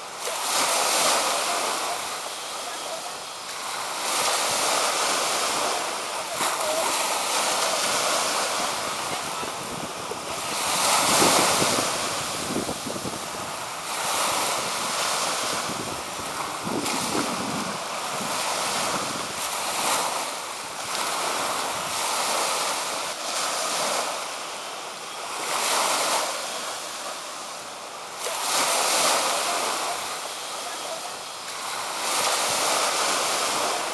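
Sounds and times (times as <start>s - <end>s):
small waves washing in shallows: 0.0s - 33.9s
wind buffeting microphone: 7.8s - 20.2s.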